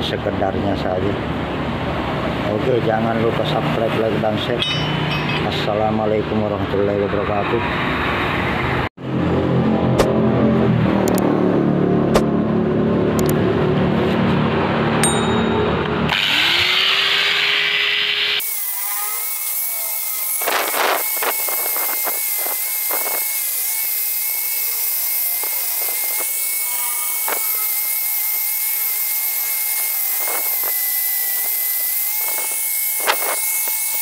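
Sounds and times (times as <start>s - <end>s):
angle grinder whining: 3.4s - 5.8s, 15.0s - 34.0s
grinding on metal: 16.1s - 34.0s.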